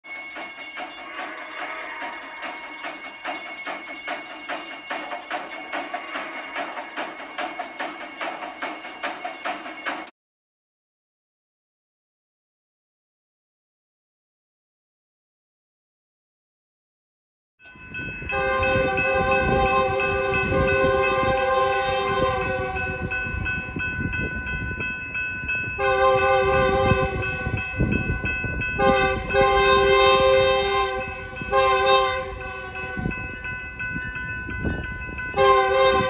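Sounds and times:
locomotive air horn blasts: 18.3 - 23.2, 25.8 - 27.7, 28.8 - 33.2, 35.4 - 36.0.

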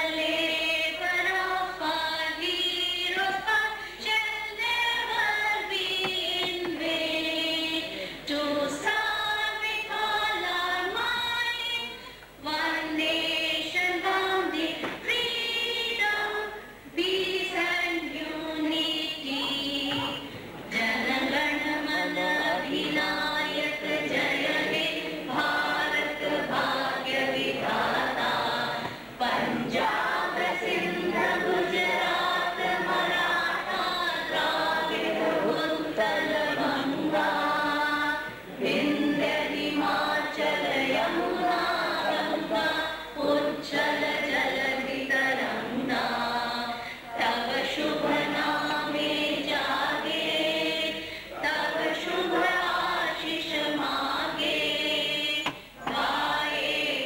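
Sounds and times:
choir of young voices singing: 0.0 - 3.7, 4.4 - 11.4, 12.5 - 57.0
singers breathing: 51.0 - 51.4.

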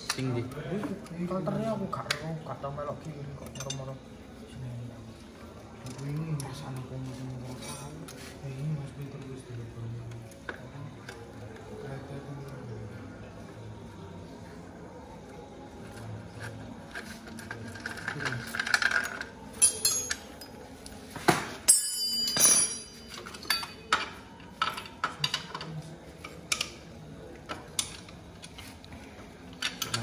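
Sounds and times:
metallic jangle: 17.7 - 20.7, 21.6 - 24.7
metal tools clinking on engine: 17.8 - 20.6, 21.6 - 24.1.

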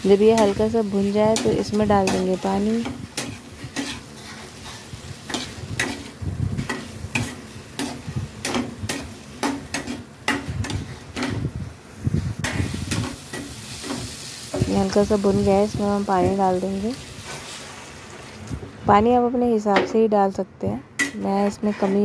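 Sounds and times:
light sizzle: 0.0 - 19.6
metal spoon scraping a pan: 0.1 - 11.4, 12.3 - 14.9, 21.0 - 22.0.

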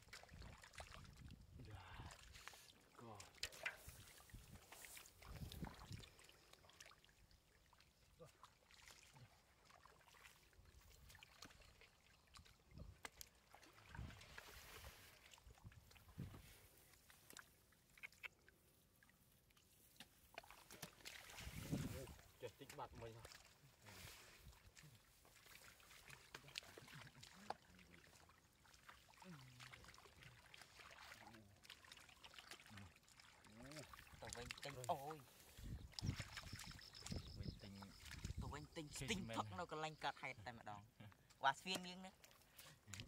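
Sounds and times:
small sharp splashes: 0.0 - 1.4, 2.0 - 39.1
hands splashing in muddy water: 19.6 - 38.7.

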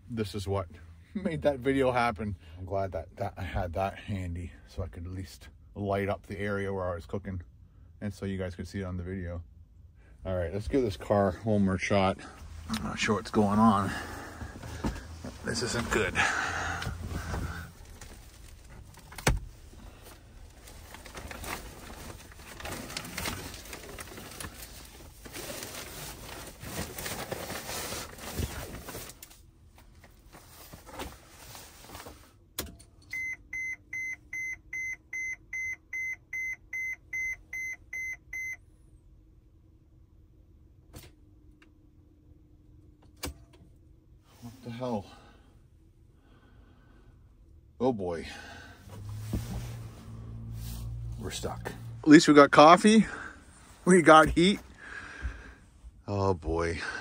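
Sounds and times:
low steady hum: 0.0 - 57.0
dashboard warning chime beeping: 33.1 - 38.6.

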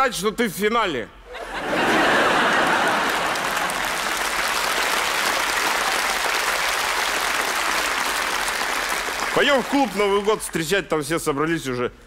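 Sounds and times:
audience applauding: 1.9 - 10.7.

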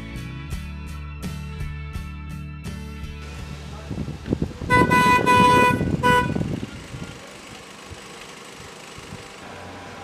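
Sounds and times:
car horn honking: 4.7 - 6.6.

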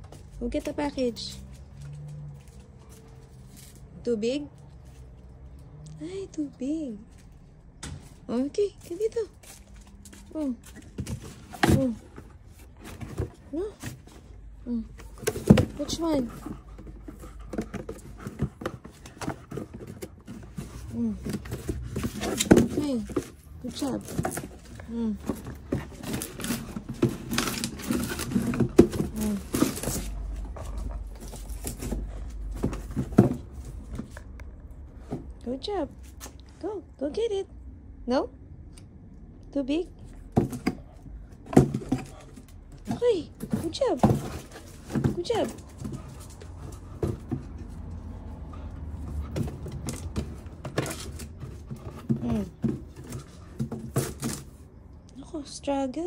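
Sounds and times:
cardboard box scraping over brick: 15.1 - 33.4.

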